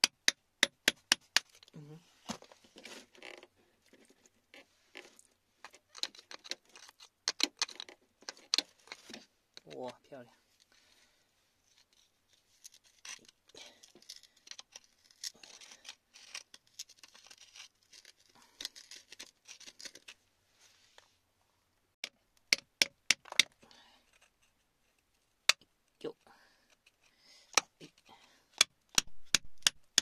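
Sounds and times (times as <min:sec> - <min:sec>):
tool tapping stone: 0:00.0 - 0:01.5, 0:22.0 - 0:23.5, 0:28.6 - 0:30.0.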